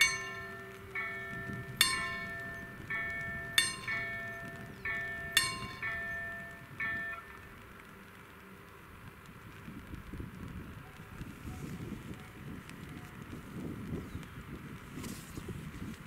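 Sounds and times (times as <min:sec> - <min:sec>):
level crossing warning bells: 0:00.0 - 0:07.9.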